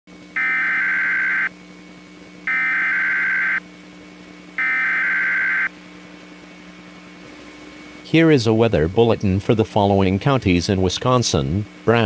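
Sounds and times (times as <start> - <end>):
low radio hum: 0.2 - 12.0
buzzy digital data bursts: 0.4 - 1.5, 2.5 - 3.6, 4.6 - 5.7.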